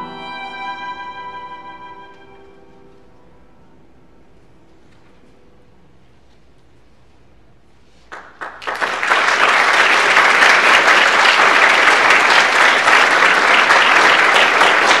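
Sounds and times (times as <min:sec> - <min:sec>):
audience applause: 0:08.1 - 0:15.0.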